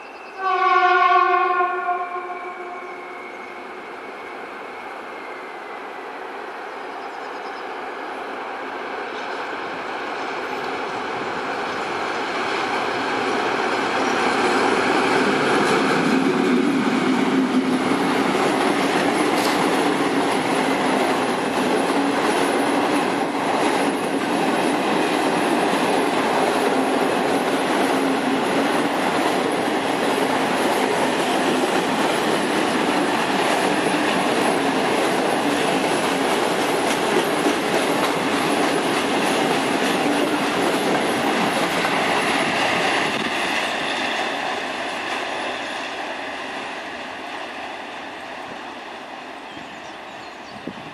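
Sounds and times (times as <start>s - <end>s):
train wheels on rails: 0.0s - 50.9s.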